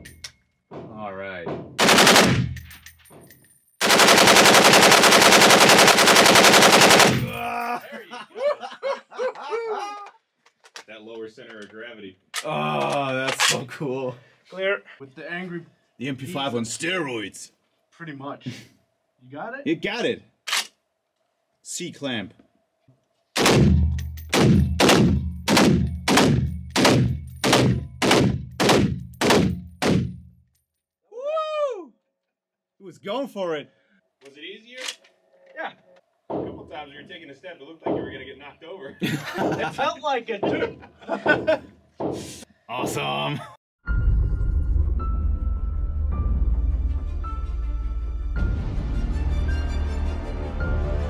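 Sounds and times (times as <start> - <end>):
automatic rifle bursts: 1.8 - 2.3, 3.8 - 7.3
rifle shots echoing indoors: 1.8 - 2.7, 3.8 - 7.4, 23.4 - 30.2.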